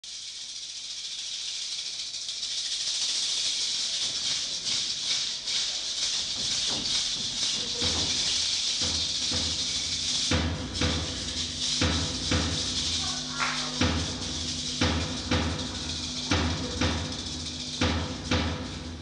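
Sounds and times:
maraca rattle: 0:00.0 - 0:19.0
deep drum beats: 0:06.4 - 0:19.0.

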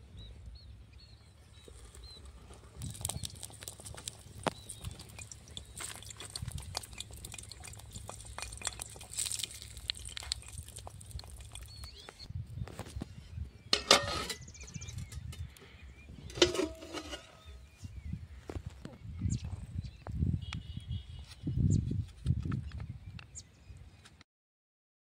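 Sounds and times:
wood fire crackling: 0:01.6 - 0:12.3.

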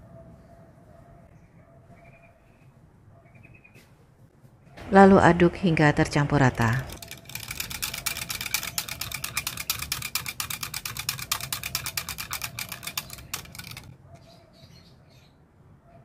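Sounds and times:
whisk beating in plastic jug: 0:06.4 - 0:14.0.

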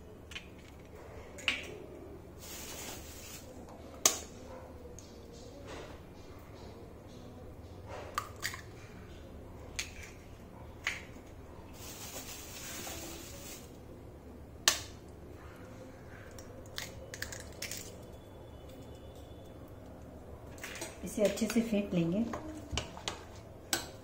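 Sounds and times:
eggshells cracking with spoon: 0:16.2 - 0:18.2.

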